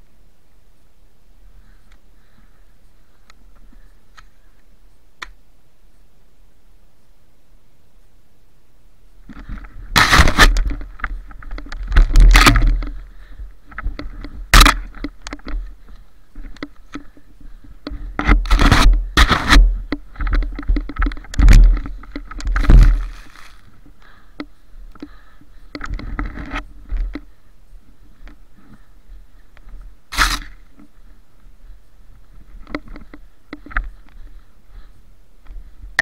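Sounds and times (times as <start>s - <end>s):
handling rumble: 9.2s - 36.0s
crunching snow: 18.0s - 23.9s, 29.7s - 34.3s.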